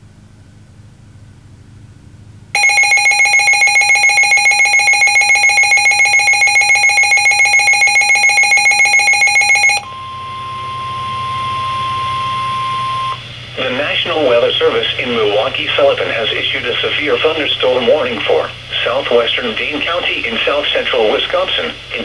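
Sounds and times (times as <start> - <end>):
rapid pulsing alarm beep: 2.6 - 13.2
steady warning alarm tone: 2.6 - 22.0.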